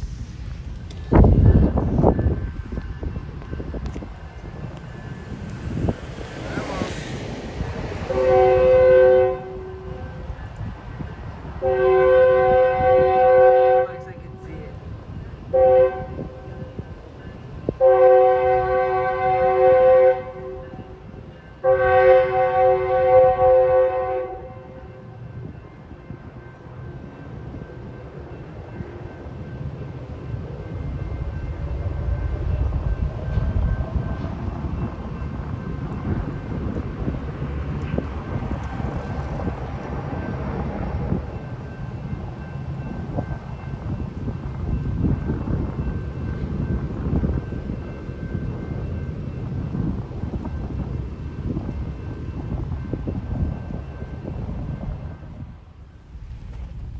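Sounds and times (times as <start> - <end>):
train rumbling past: 0.0 - 56.9
train horn blasts: 8.0 - 10.3, 11.6 - 14.8, 15.5 - 16.9, 17.7 - 27.2.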